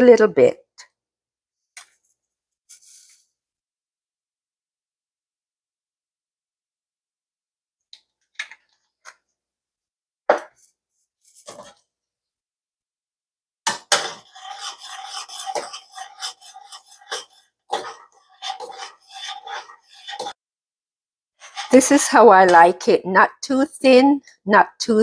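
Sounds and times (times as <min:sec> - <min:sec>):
spoon scraping a saucepan: 0:13.7 - 0:20.4, 0:21.4 - 0:22.9.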